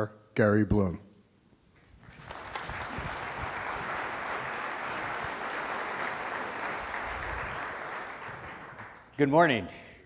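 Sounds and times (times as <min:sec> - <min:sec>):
large audience applauding: 0:02.0 - 0:09.2.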